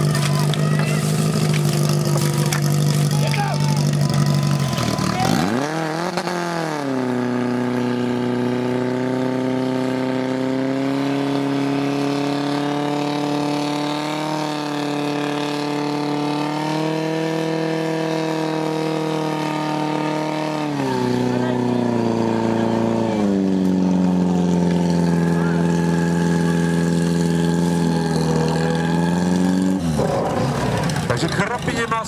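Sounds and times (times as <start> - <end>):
pump engine running at full throttle: 0.0 - 10.3, 17.1 - 32.0.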